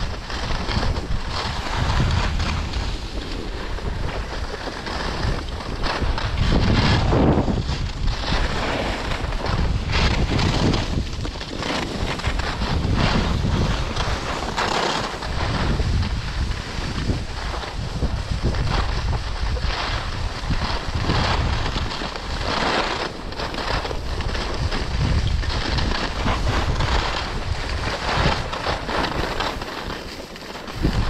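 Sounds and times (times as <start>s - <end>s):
skis scraping over snow: 0.0s - 31.0s
wind buffeting microphone: 0.0s - 31.0s.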